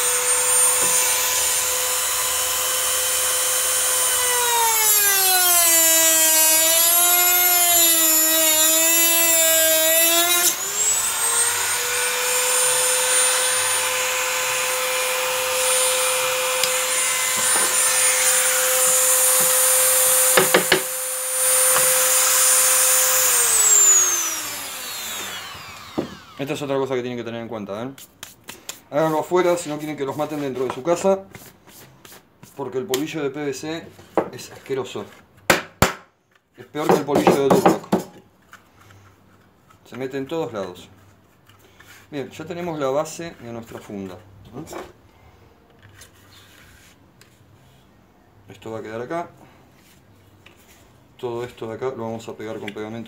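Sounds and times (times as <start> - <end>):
rotary tool cutting plastic pipe: 0.0 - 26.4.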